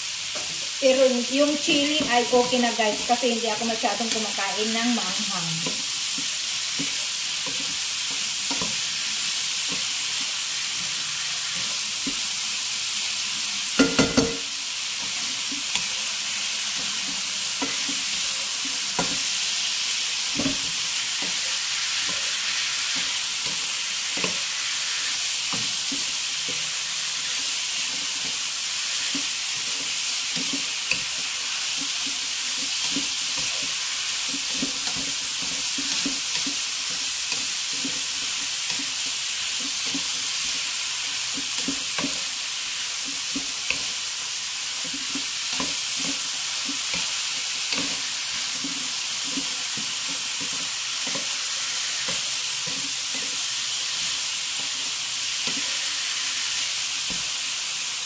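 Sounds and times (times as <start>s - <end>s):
pickle mixture sizzling in a pan: 0.0s - 58.0s
utensil knocking against pan: 13.8s - 14.5s.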